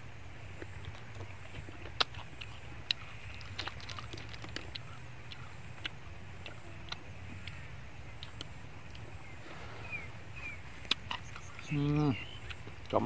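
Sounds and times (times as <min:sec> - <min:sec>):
low outdoor rumble: 0:00.0 - 0:13.0
bird chirps: 0:09.1 - 0:12.7.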